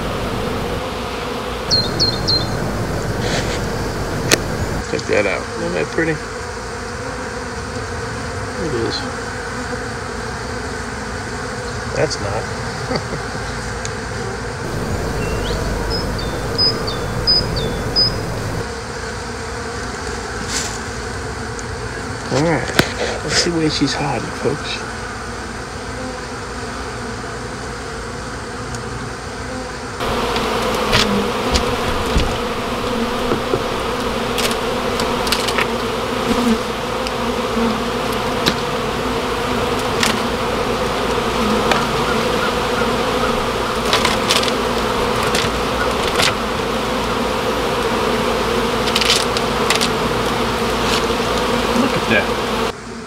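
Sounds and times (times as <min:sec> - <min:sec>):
bees buzzing: 0:00.0 - 0:11.9, 0:12.5 - 0:18.9, 0:29.5 - 0:53.0
sharp clicks: 0:03.1 - 0:04.6.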